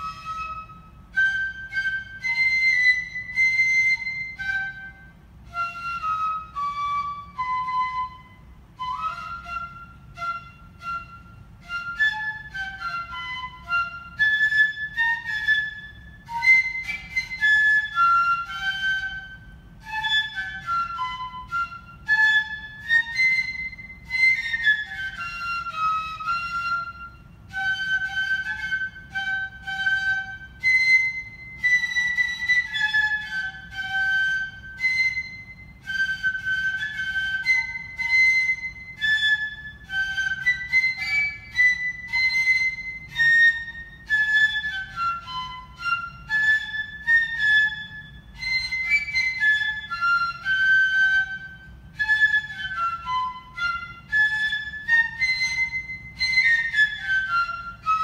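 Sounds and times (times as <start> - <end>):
flute playing hymn melody: 0.0 - 58.0.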